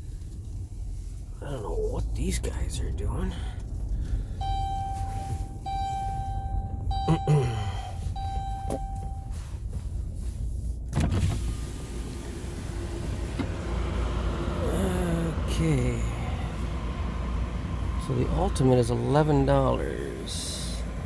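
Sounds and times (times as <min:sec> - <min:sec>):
low vehicle hum: 0:00.0 - 0:21.0
power window motor whining: 0:10.9 - 0:14.6.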